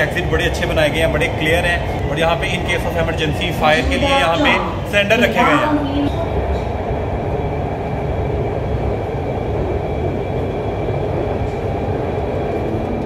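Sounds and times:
faint high hum: 0:00.0 - 0:13.0
train rumbling on track: 0:00.0 - 0:13.0.

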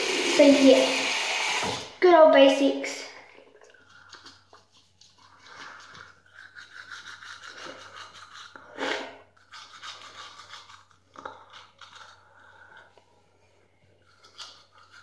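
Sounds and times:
toothbrush scrubbing teeth: 0:03.3 - 0:13.0, 0:14.0 - 0:15.0.

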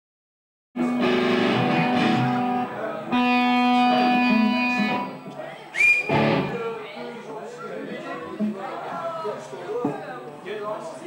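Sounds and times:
electric guitar chords ringing: 0:00.8 - 0:05.2, 0:06.1 - 0:06.6.

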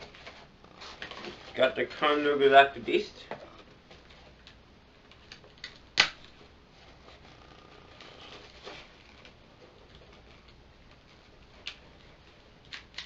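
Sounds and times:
packaging rustling: 0:05.1 - 0:12.9.

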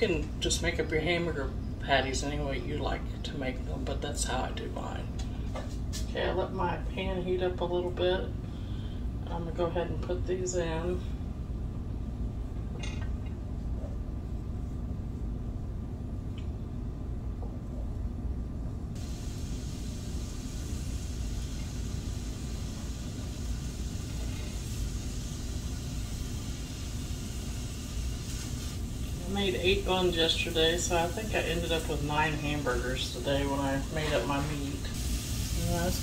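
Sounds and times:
meat sizzling: 0:19.0 - 0:36.0.

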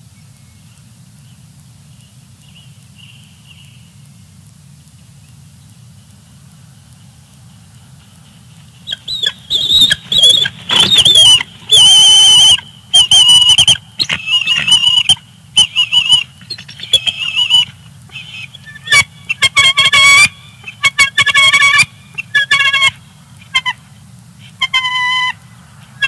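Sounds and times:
eagle high-pitched calls: 0:08.0 - 0:26.0.

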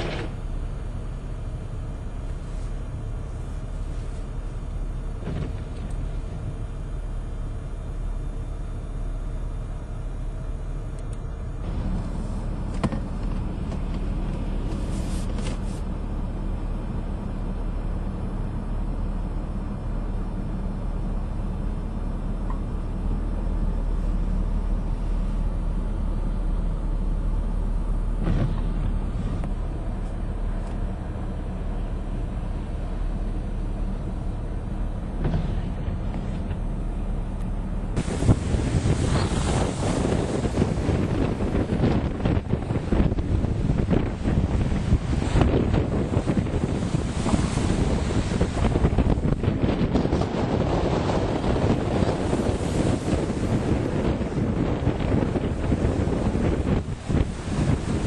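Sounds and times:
storm surf crashing on seawall: 0:00.0 - 0:00.9, 0:37.9 - 0:58.0
strong wind: 0:00.0 - 0:58.0.

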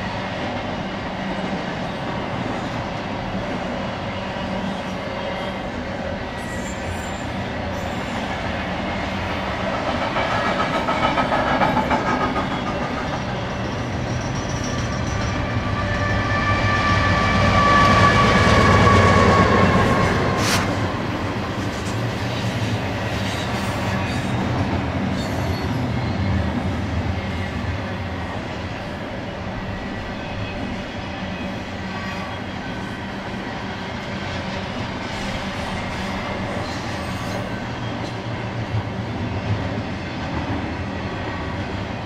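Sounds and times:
diesel locomotive engines droning: 0:00.0 - 0:42.0
train wheels clattering over rails: 0:08.7 - 0:15.8.

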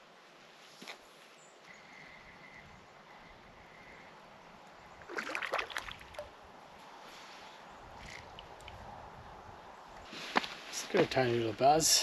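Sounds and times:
water splashing: 0:05.0 - 0:06.3.

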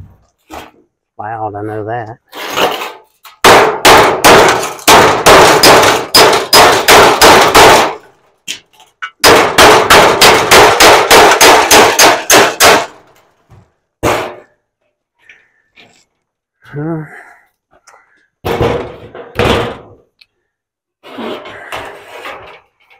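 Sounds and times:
hammer clanging on sheet metal: 0:02.7 - 0:08.0, 0:09.2 - 0:13.0.

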